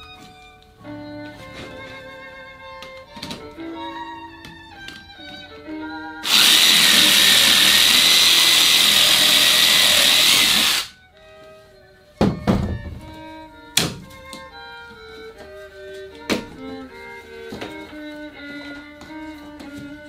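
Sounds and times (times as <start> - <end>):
cordless power tool whirring: 6.2 - 11.0.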